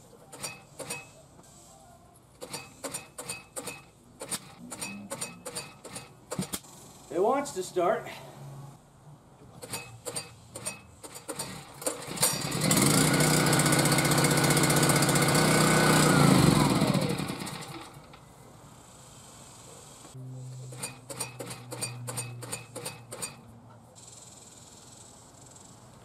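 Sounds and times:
generator engine starting and running: 9.6 - 18.2.

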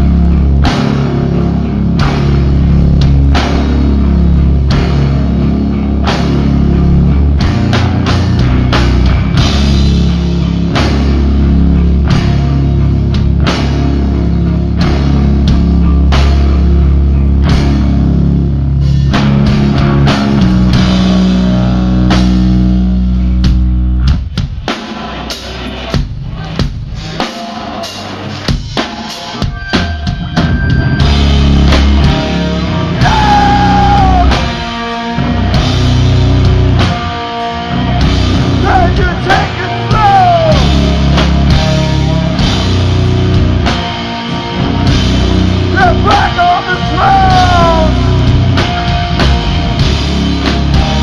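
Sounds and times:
heavy metal band playing: 0.0 - 51.0
person singing: 32.8 - 34.5, 38.6 - 41.0, 45.7 - 48.2.

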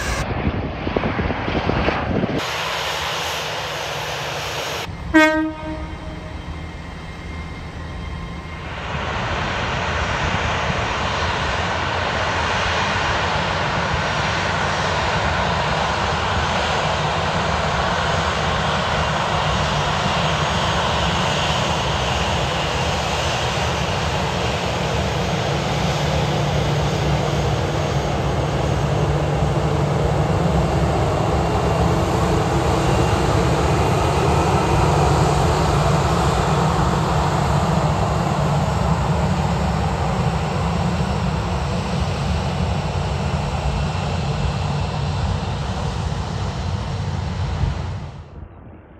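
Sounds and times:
jet engines at taxi power: 0.0 - 48.9.

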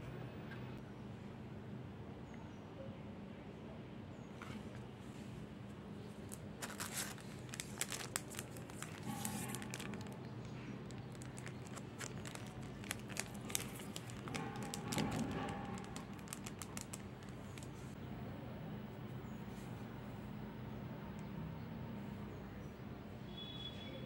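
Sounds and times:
plastic packaging crinkling: 6.2 - 18.0.

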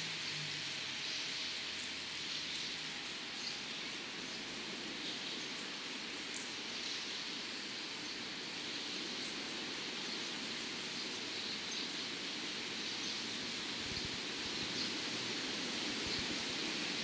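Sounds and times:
outdoor background hiss: 0.0 - 17.0.

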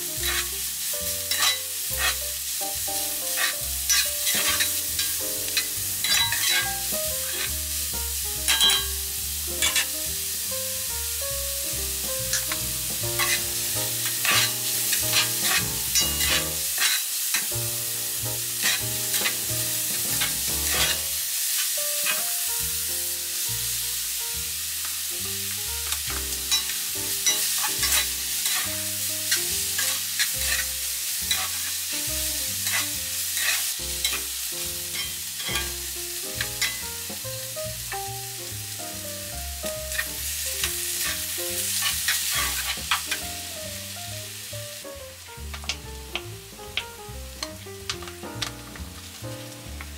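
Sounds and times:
vegetables sizzling in oil: 0.0 - 49.9
spatula knocking and scraping pan: 0.2 - 0.6, 1.2 - 2.2, 3.3 - 7.6, 9.6 - 10.2, 11.9 - 17.5, 18.4 - 21.2, 25.9 - 28.8, 29.4 - 31.8, 32.6 - 37.3, 39.9 - 43.2.

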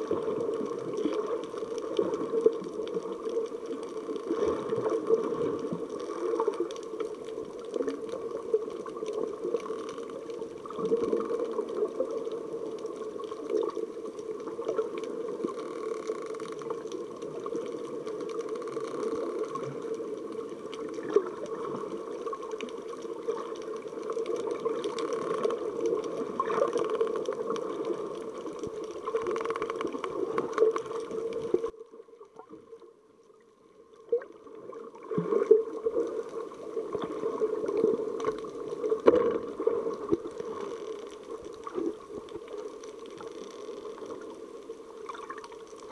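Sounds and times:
water bubbling: 0.0 - 32.5, 34.1 - 45.9
small knocks underwater: 38.2 - 41.9.

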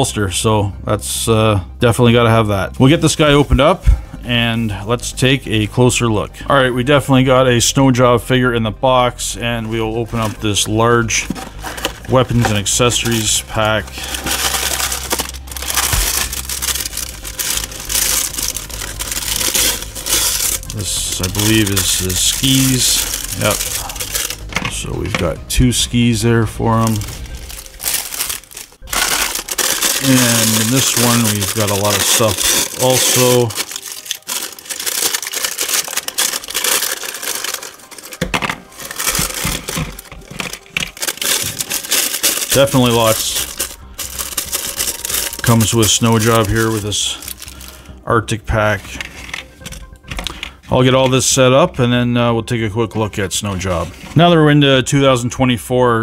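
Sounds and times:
plastic bag crinkling: 9.5 - 25.2, 26.6 - 48.0.

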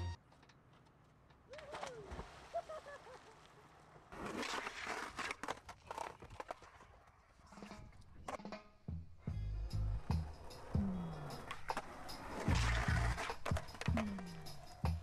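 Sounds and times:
skateboard grinding on concrete: 4.1 - 8.5, 9.6 - 15.0.

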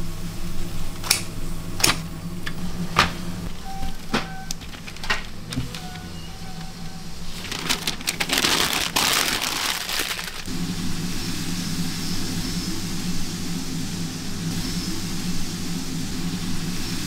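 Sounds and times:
low engine hum: 0.0 - 17.0
crackling rustling noise: 3.9 - 10.5.

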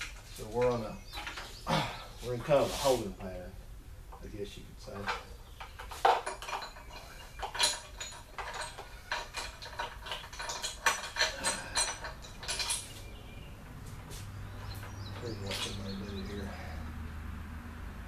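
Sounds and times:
metal chain clinking: 4.9 - 13.4, 14.5 - 16.8.

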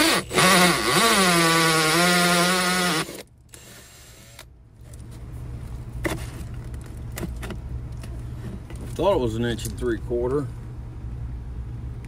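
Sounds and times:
drill motor whine: 0.0 - 4.4.

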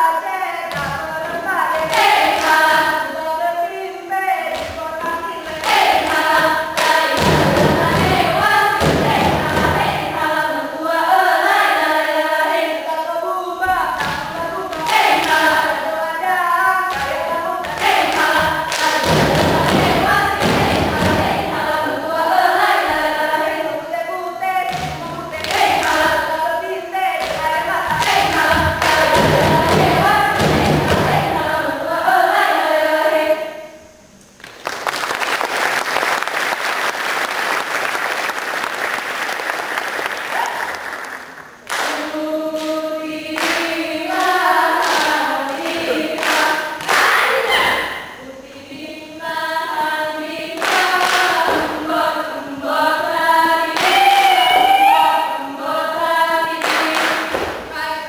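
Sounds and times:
group chanting in unison: 0.7 - 33.7, 41.7 - 58.0
hand claps: 16.9 - 21.2, 24.7 - 26.0, 27.2 - 31.0, 34.4 - 42.8, 43.4 - 47.2, 50.6 - 51.8, 53.7 - 54.7, 56.6 - 57.6.

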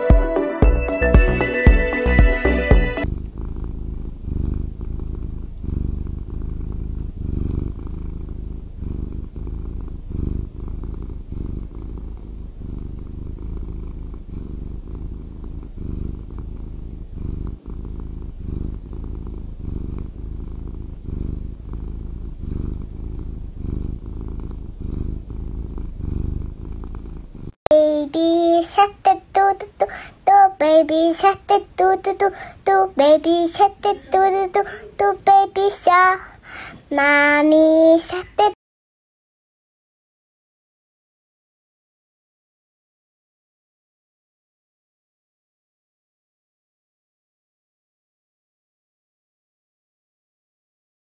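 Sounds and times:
kitten purring: 3.0 - 38.6.

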